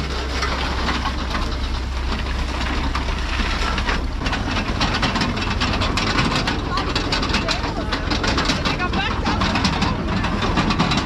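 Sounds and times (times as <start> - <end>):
potato harvester clattering: 0.0 - 11.0
tractor engine running: 0.0 - 11.0.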